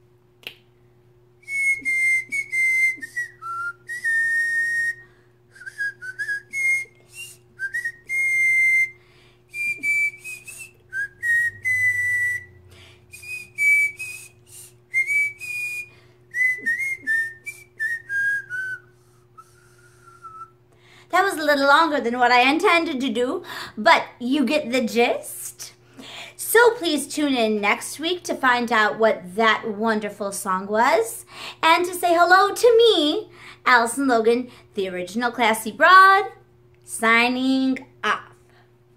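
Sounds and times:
woman whistling a melody: 1.4 - 20.6.

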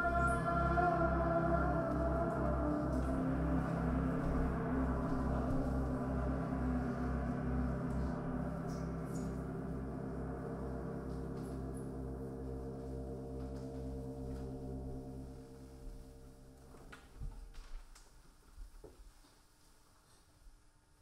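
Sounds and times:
electronic drone music: 0.0 - 16.8.

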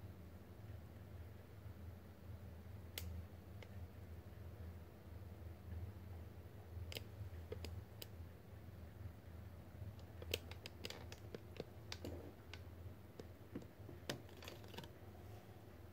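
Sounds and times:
low steady hum: 0.0 - 15.9
handling clicks and taps: 10.0 - 15.0.

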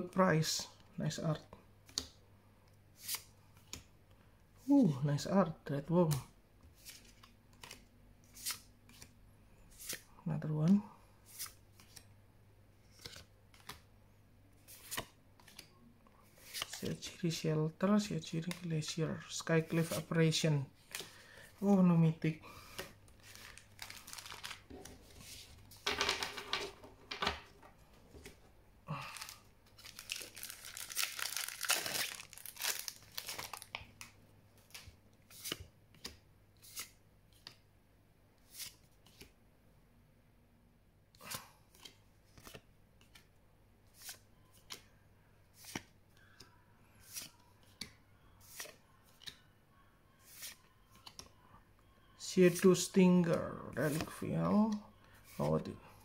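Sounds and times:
foil wrapper tearing and crinkling: 23.4 - 24.6, 29.8 - 33.8.

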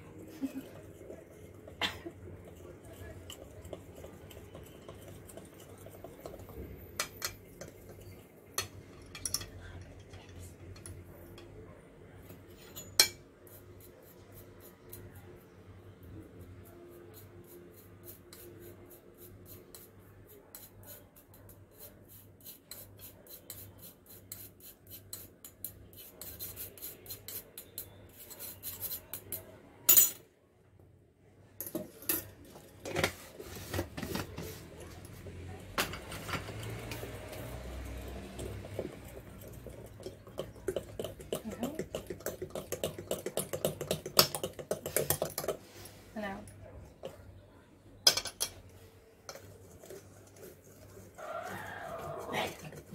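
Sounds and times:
whisk scraping glass bowl: 0.6 - 8.3, 16.6 - 29.4, 36.0 - 45.6, 49.3 - 52.9.

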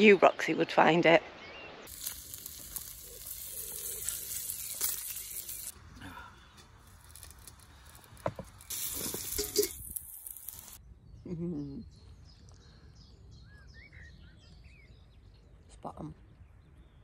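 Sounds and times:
bacon sizzling on griddle: 1.9 - 5.8, 6.7 - 10.8.

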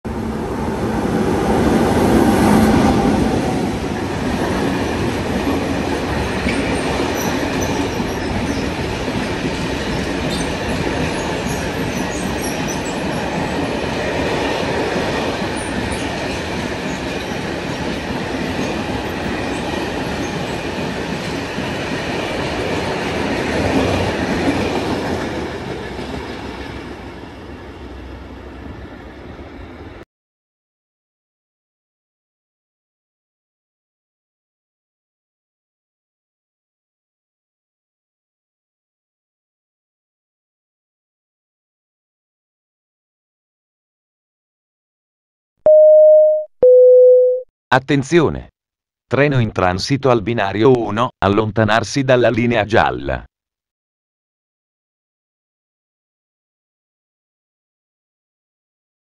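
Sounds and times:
train wheels rumbling on track: 0.1 - 30.0.

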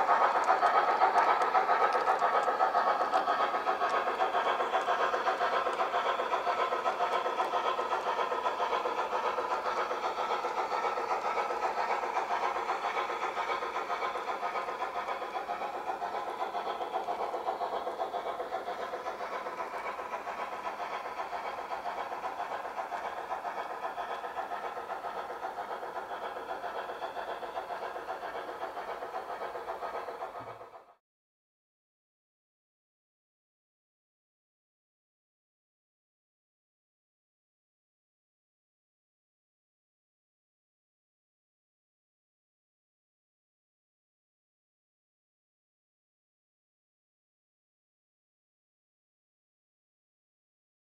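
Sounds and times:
model train running on track: 0.0 - 31.0.

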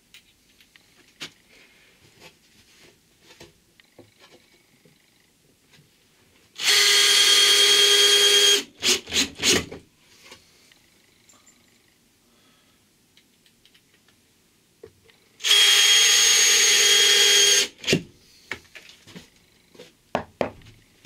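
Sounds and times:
power drill whining: 6.6 - 9.7, 15.4 - 18.0.

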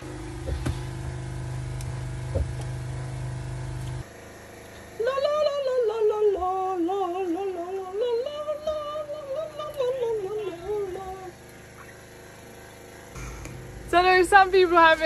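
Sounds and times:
low mechanical hum: 0.0 - 15.0
music with woman singing: 5.0 - 11.3.

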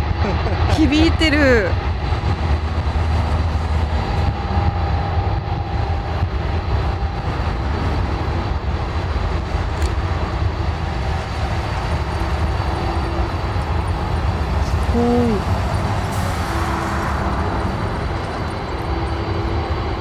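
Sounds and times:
faint engine whine: 0.0 - 20.0
jet engines rumbling: 0.0 - 20.0.

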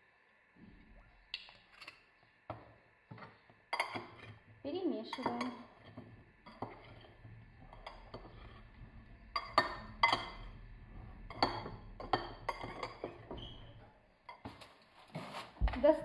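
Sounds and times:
metal spoon clinking ceramic bowl: 3.7 - 4.3, 5.1 - 8.7, 9.3 - 10.7, 11.3 - 14.4.

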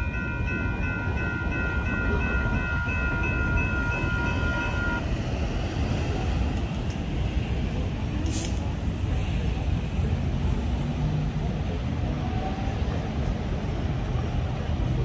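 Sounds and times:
railroad crossing bell dinging: 0.0 - 5.1.

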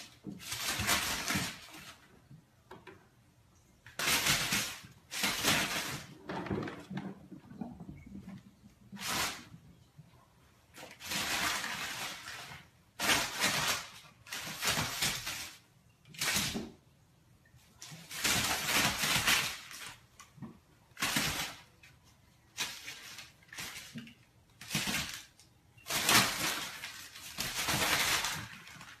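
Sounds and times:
paper crinkling and rustling: 17.8 - 29.0.

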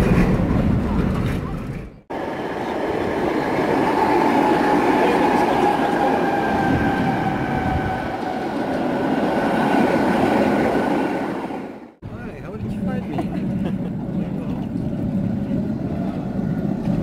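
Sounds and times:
tram wheels rumbling on rails: 0.0 - 17.0
high-pitched tram whine: 2.1 - 12.0.

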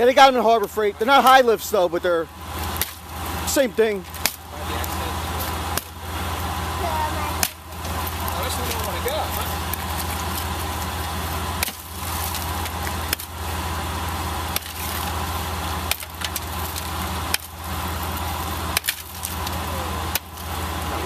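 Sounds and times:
vehicle engine idling: 0.0 - 21.0
steel tool chopping ice: 2.6 - 5.0, 11.5 - 13.4, 14.4 - 20.5.

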